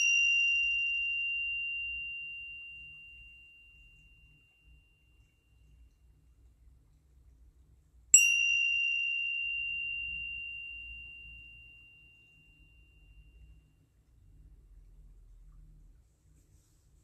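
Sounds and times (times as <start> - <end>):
meditation bell ringing: 0.0 - 6.2, 8.1 - 14.0.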